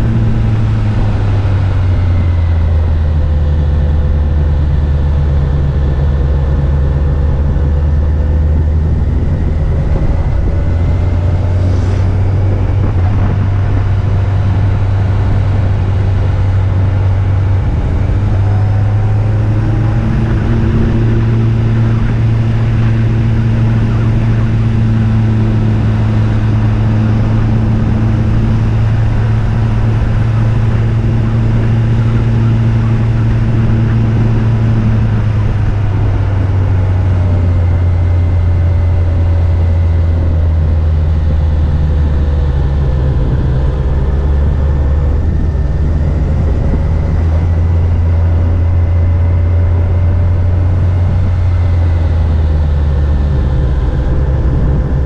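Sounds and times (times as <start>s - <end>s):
motorcycle engine running: 0.0s - 55.0s
wind noise: 0.0s - 55.0s.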